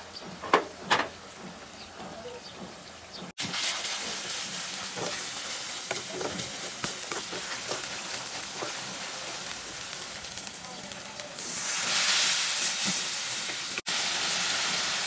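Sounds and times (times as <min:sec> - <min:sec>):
food sizzling in hot oil: 0:03.4 - 0:15.0
wooden spatula scraping pan: 0:05.9 - 0:09.8.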